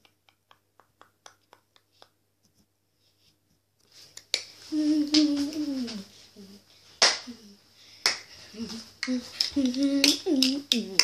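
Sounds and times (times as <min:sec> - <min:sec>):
boy's wordless vocal tone: 0:04.6 - 0:06.7, 0:08.4 - 0:11.0.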